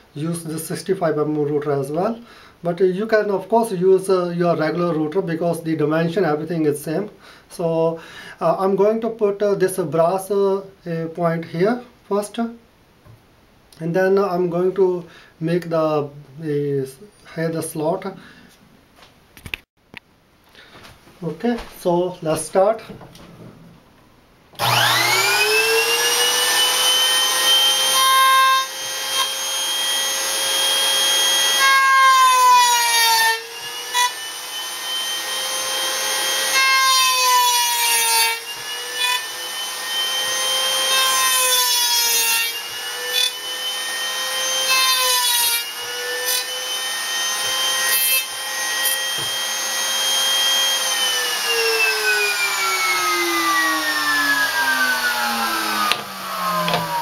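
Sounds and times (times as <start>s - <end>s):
router bit cutting wood: 24.6s - 57.0s
router motor whining: 24.6s - 57.0s.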